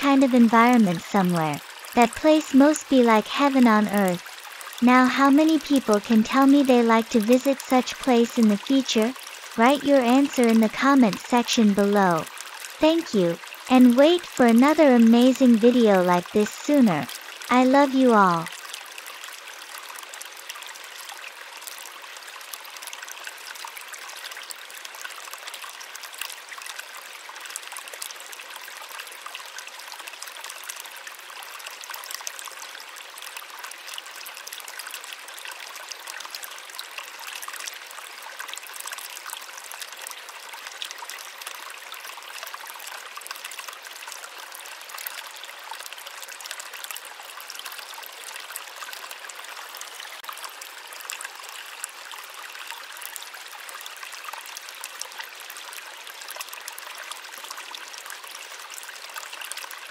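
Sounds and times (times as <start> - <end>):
running water splashing: 0.0 - 18.6.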